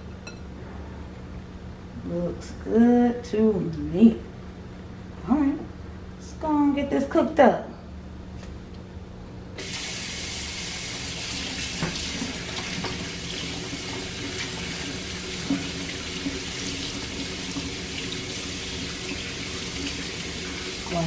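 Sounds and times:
faucet running into metal sink: 9.6 - 21.0.

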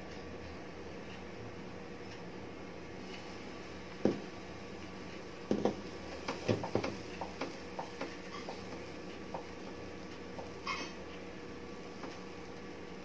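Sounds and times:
ladle tapping on pan: 5.5 - 9.5.

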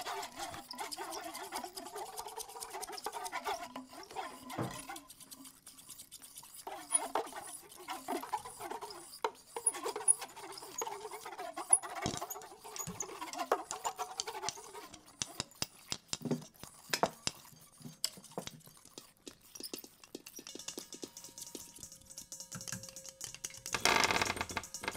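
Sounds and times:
small clicks and taps: 12.9 - 24.9.

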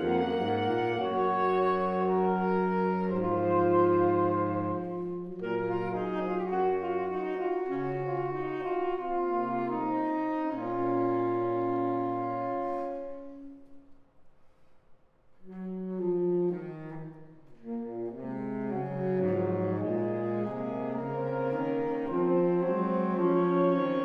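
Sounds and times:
saxophone quartet playing: 0.0 - 13.8, 15.5 - 24.0.

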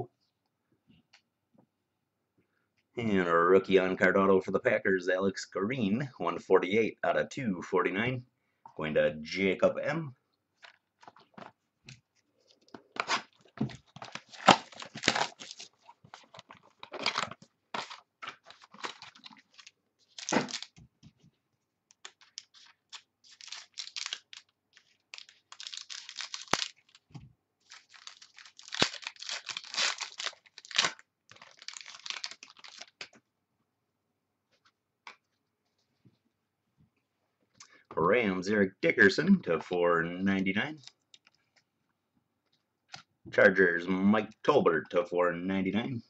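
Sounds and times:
cards being handled: 10.6 - 20.8, 21.9 - 33.2
packaging tearing and crinkling: 12.9 - 20.8, 22.0 - 33.1.

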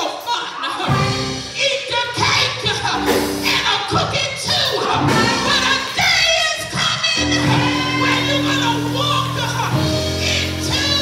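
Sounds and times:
woman singing gospel: 5.0 - 11.0.

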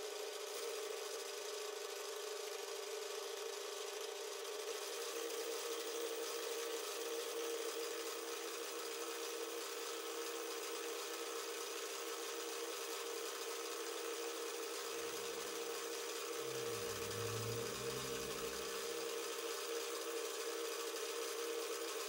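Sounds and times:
metal lathe whine: 16.2 - 19.1
low machine hum: 16.2 - 19.2.

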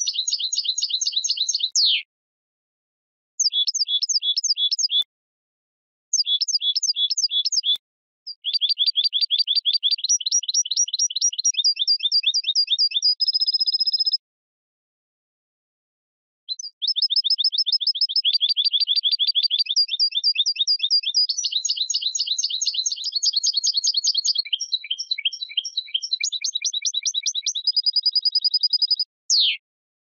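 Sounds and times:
goldfinch singing fast trills: 0.0 - 2.0, 3.4 - 5.0, 6.2 - 14.2, 16.5 - 29.6.

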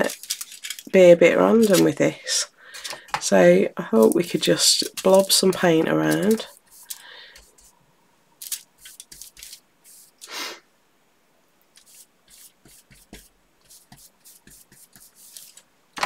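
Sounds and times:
person breathing: 2.5 - 3.2, 6.7 - 7.6, 10.2 - 10.7
paintbrush strokes on fabric: 4.9 - 7.8, 8.8 - 10.4, 11.8 - 15.6.

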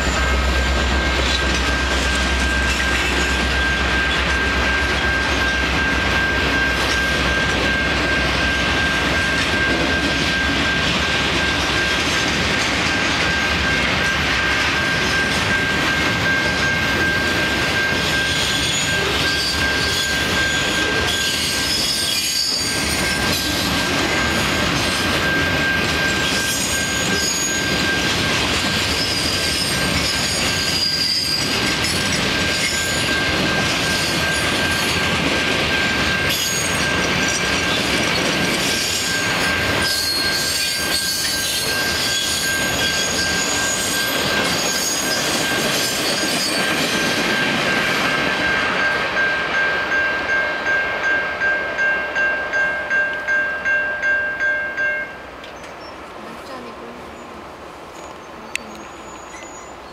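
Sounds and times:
crossing warning bell ringing: 0.0 - 56.7
train wheels rumbling on rails: 0.0 - 59.9
high wheel squeals: 12.9 - 35.0, 35.7 - 48.1, 58.0 - 59.9.

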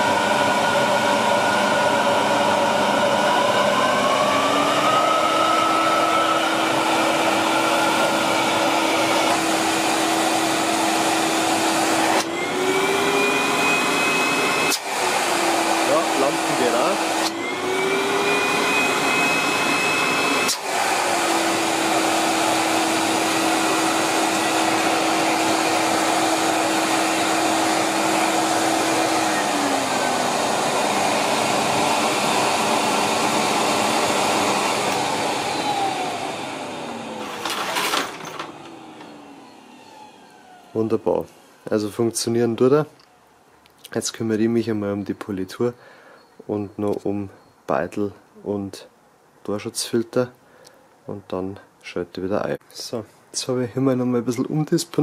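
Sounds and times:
vacuum cleaner motor running: 0.0 - 41.7.

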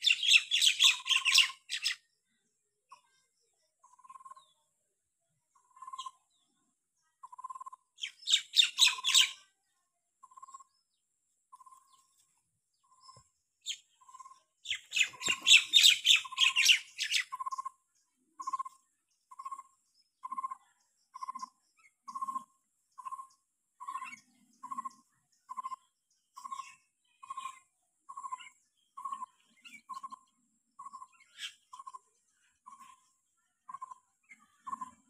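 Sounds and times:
rapid high chirping: 13.7 - 17.8.

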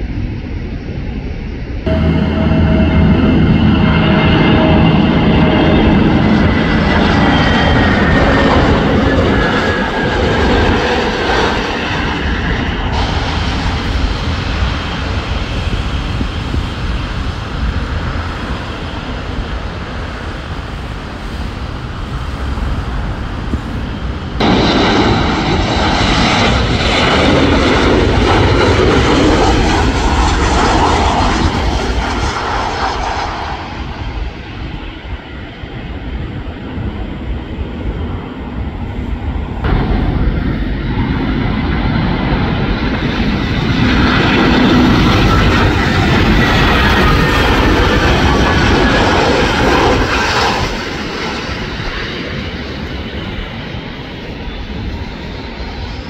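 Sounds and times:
jet airliner engines roaring: 0.0 - 56.0.

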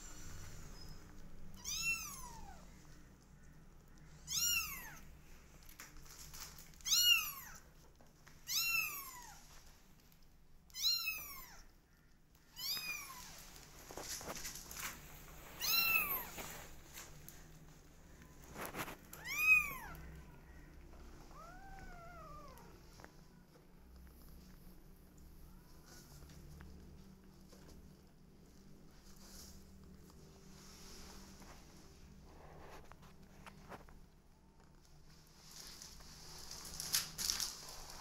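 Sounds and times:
fainter lower meow: 1.6 - 2.6, 4.3 - 5.0, 8.5 - 9.4, 10.7 - 11.6, 12.5 - 13.3, 19.2 - 20.7, 21.3 - 22.7
kittens meowing: 4.3 - 5.0, 19.2 - 22.8.

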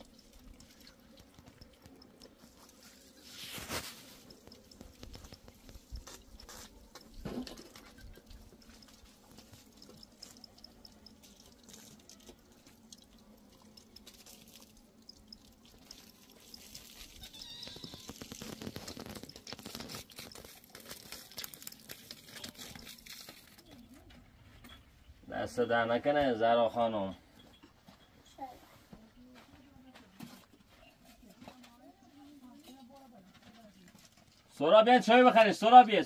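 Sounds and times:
footsteps on stony ground: 16.6 - 24.6, 27.7 - 34.6.

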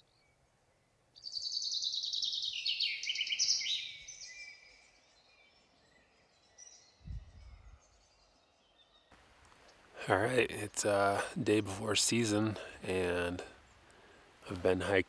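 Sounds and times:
faint bird chirps: 0.0 - 10.0
songbird trilling: 1.2 - 4.9.

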